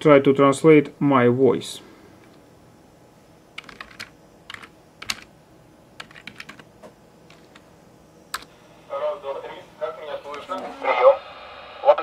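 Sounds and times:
computer keyboard typing: 3.6s - 5.3s, 6.0s - 6.7s.

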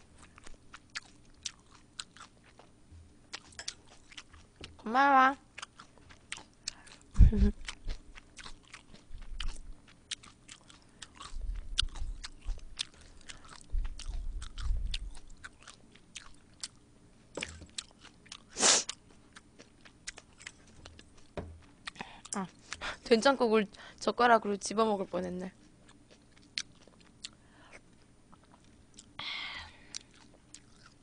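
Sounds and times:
close chewing: 0.1s - 4.9s, 5.5s - 16.8s, 17.4s - 23.1s, 25.0s - 29.2s, 29.9s - 31.0s
low chewing thuds: 0.2s - 4.8s, 5.6s - 18.4s, 19.0s - 23.0s.

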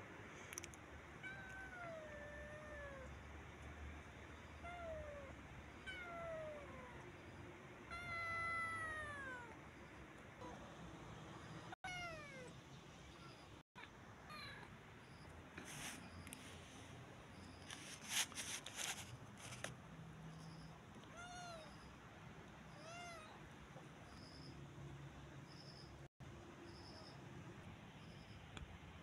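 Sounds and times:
kitten meowing: 11.8s - 12.6s, 21.1s - 21.8s.

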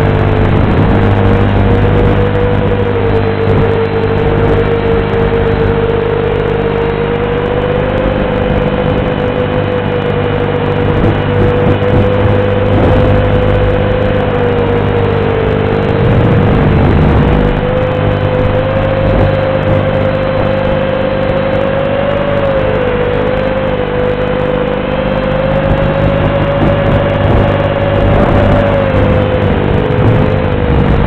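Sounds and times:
quadcopter motors whining: 0.0s - 31.0s
rushing noise: 0.0s - 31.0s.

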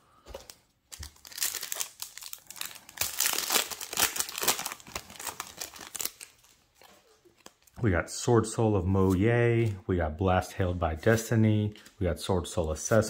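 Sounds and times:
foil wrapper crinkling and tearing: 0.9s - 7.8s.

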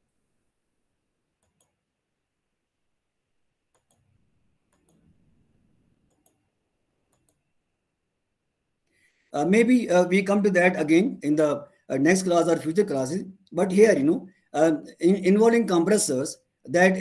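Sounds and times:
faint computer mouse clicks: 1.4s - 1.8s, 3.7s - 4.1s, 4.7s - 5.2s, 6.0s - 6.4s, 7.1s - 7.4s.

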